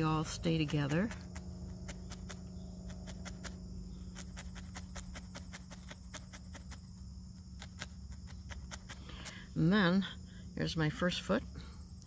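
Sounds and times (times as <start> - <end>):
felting needle stabbing ticks: 0.0 - 9.5
insects chirring: 0.0 - 12.0.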